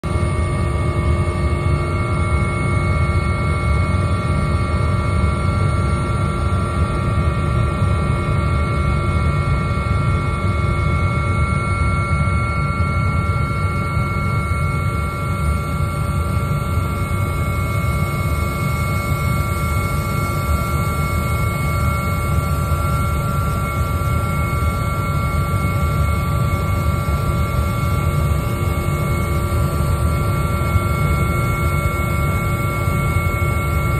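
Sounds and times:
helicopter rotor rumble: 0.0 - 33.9.

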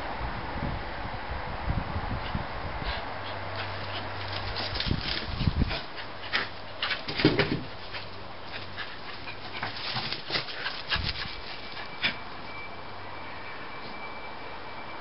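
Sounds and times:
dog panting and snuffling: 2.2 - 12.3.

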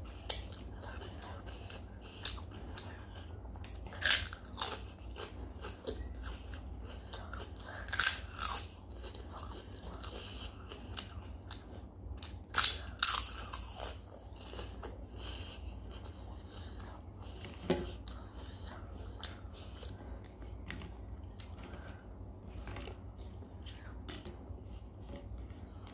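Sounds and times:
crunching crisp fried food: 0.0 - 25.9
quiet chewing: 0.0 - 25.9.

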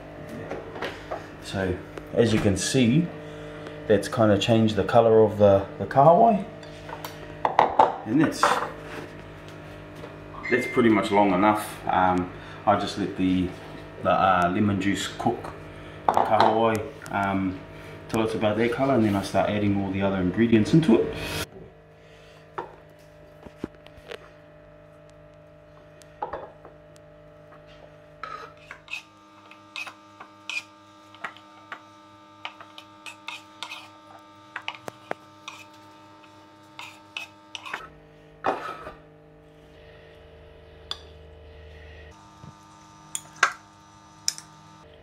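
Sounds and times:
steady hum: 0.0 - 45.0
knife scraping wooden board: 28.2 - 31.8, 32.4 - 34.0, 34.6 - 37.9.

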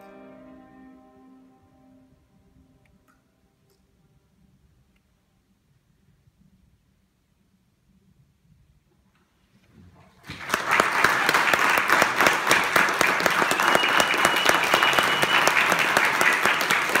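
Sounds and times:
audience applause: 10.2 - 17.0.

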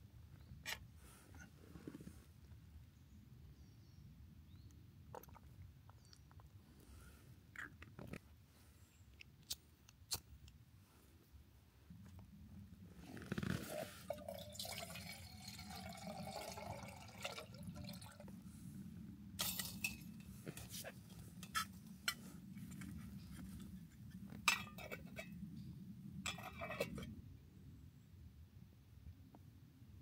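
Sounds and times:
liquid pouring into a vessel: 14.0 - 18.3.

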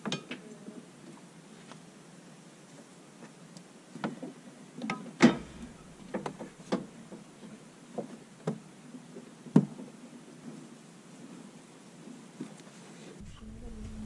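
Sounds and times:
metal wheel knocks and clicks: 4.9 - 6.9.

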